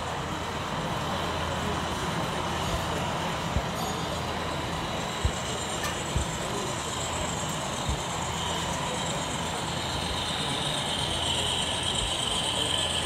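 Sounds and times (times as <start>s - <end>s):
exhibition hall background noise: 0.0s - 13.0s
high whine: 0.0s - 13.0s
model locomotive hum: 0.0s - 13.0s.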